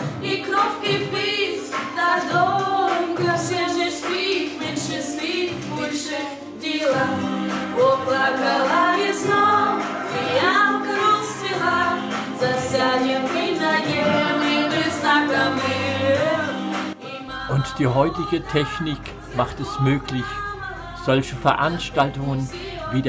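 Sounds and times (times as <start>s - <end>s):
woman singing: 0.0s - 23.0s
instrumental accompaniment: 7.2s - 23.0s.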